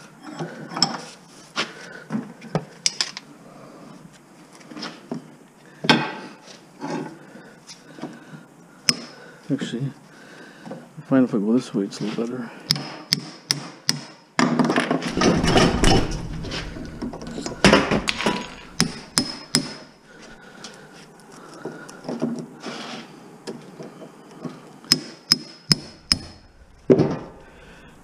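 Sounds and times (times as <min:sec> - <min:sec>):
metal scraping: 0:15.1 - 0:19.6, 0:25.8 - 0:28.0
hammer striking metal: 0:15.2 - 0:19.8, 0:24.9 - 0:27.3.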